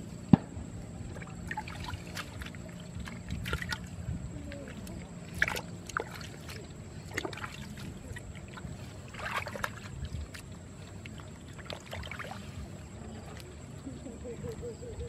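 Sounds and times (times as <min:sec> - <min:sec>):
steady low rumble: 0:00.0 - 0:15.0
water splashes: 0:00.8 - 0:15.0
mud squelches: 0:01.0 - 0:15.0.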